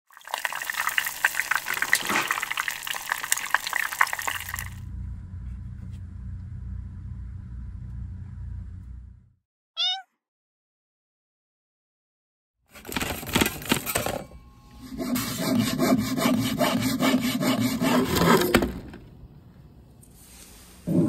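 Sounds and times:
deep-frying sizzling and popping: 0:00.1 - 0:04.8
low steady rumble: 0:04.8 - 0:09.4
cat meow: 0:09.8 - 0:10.1.

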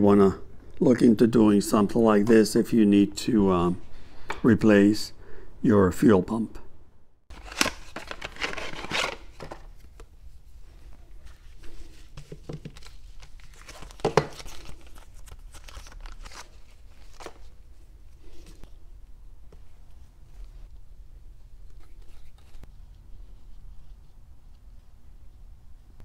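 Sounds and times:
plastic packaging crinkling: 0:07.3 - 0:09.8, 0:12.6 - 0:17.5.

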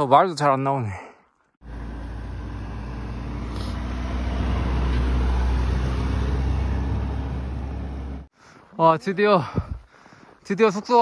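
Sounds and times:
car driving past on snow: 0:01.6 - 0:08.3.

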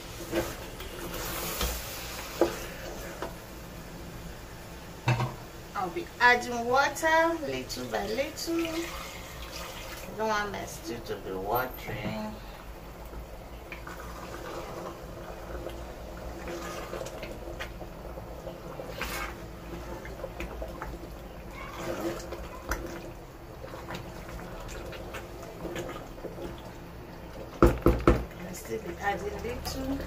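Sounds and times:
stew sloshing and squelching: 0:08.5 - 0:10.2, 0:16.3 - 0:17.9, 0:18.6 - 0:27.6.

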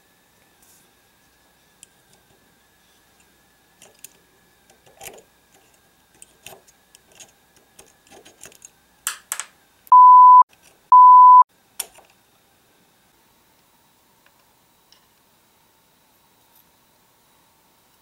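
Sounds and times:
metallic clicks and scrapes: 0:03.1 - 0:08.8
steady bleep tone: 0:09.9 - 0:11.5.

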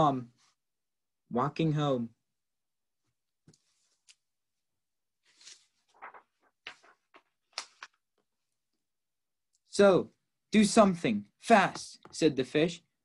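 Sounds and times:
book rustling and knocking: 0:05.4 - 0:08.0.

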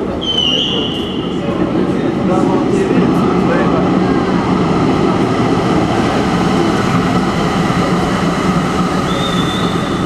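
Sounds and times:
tram rumbling past: 0:00.0 - 0:10.0
high squeal: 0:09.1 - 0:10.0.

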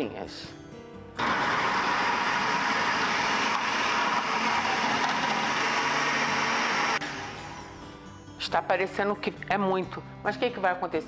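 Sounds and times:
food processor shredding: 0:01.2 - 0:07.6.

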